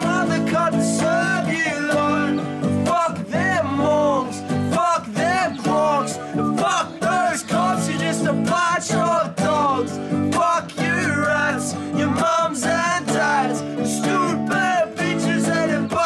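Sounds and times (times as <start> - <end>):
song with vocals over guitar: 0.0 - 16.0.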